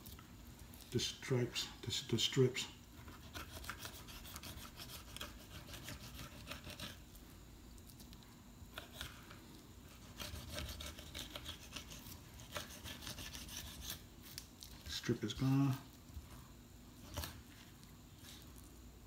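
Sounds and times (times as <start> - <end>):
knife sawing through fish: 3.0 - 7.0, 9.9 - 14.0.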